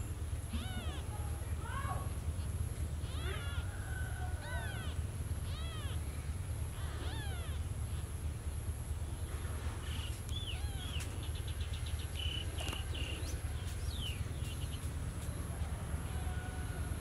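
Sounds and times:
low background rumble: 0.0s - 17.0s
faint high chirps and squeaks: 0.5s - 1.1s, 3.0s - 6.1s, 6.7s - 8.2s, 9.8s - 14.9s.

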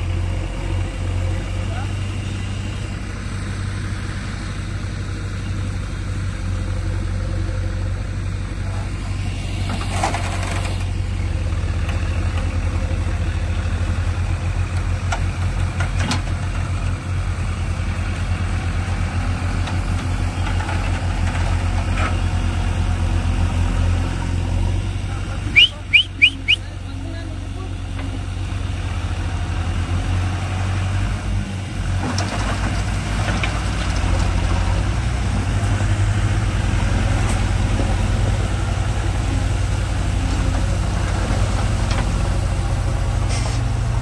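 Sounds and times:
diesel engines running: 0.0s - 44.0s
short high-pitched beeps: 25.6s - 26.7s.

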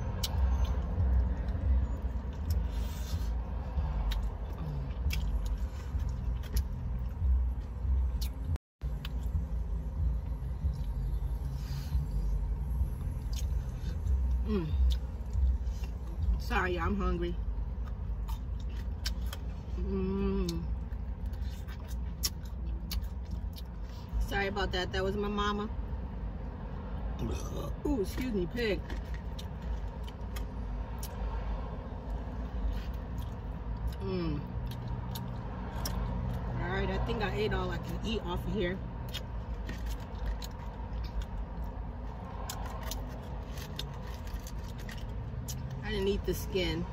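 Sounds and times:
chewing and mouth clicks: 4.0s - 9.7s, 12.0s - 16.4s, 17.6s - 19.6s, 20.4s - 24.0s, 28.8s - 31.5s, 32.6s - 36.6s, 39.0s - 45.8s.

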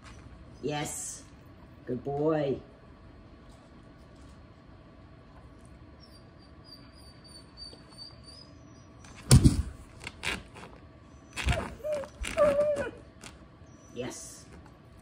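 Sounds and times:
dog thumping against leg: 9.2s - 9.9s.

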